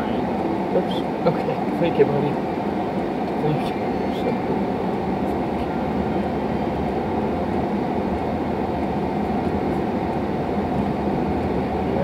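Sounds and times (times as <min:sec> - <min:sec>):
car driving on wet road: 0:00.0 - 0:12.0.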